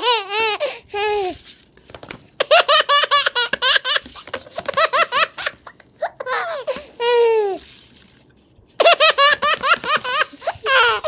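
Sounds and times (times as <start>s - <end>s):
baby laughing: 0.0s - 1.3s, 2.4s - 7.6s, 8.8s - 11.0s.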